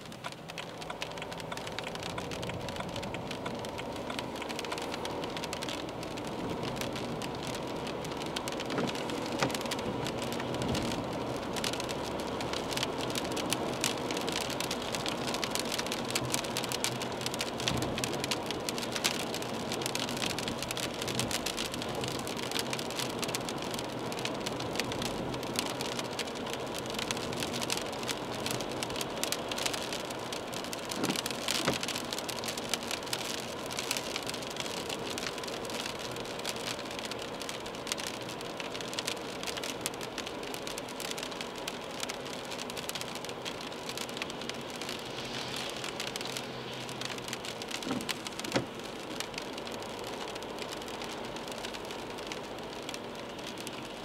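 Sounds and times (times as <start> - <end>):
car driving on wet road: 0.0 - 54.0
rain on car windscreen: 0.0 - 54.0.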